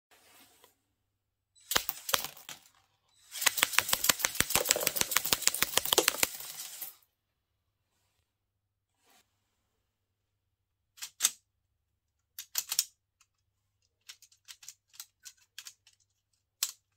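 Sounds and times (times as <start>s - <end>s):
plastic parts rattling and clicking: 1.7s - 6.9s, 12.3s - 16.9s.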